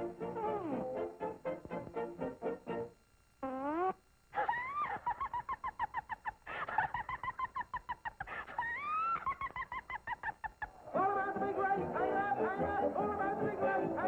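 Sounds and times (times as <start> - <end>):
cartoon hen cackling: 4.4 - 10.8.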